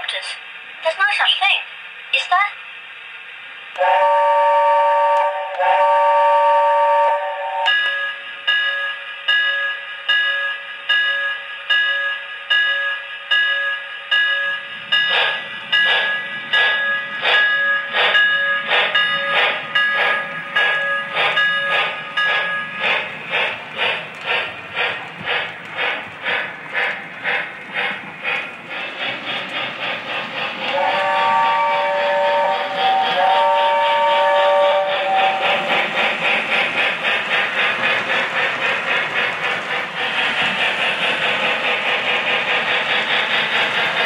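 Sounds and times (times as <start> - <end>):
steam chuffs: 0.0 - 10.2, 13.1 - 44.0
toy train whistle: 3.8 - 7.9, 30.7 - 35.6
toy train motor and wheels running: 14.9 - 44.0.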